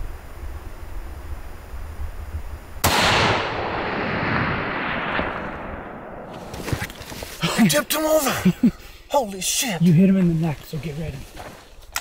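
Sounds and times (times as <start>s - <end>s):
rifle shot with rolling echo: 2.8s - 6.5s.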